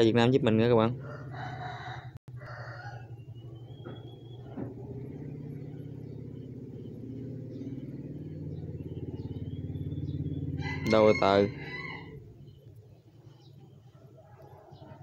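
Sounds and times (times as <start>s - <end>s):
motor rumbling with fast pulse: 2.9s - 13.7s.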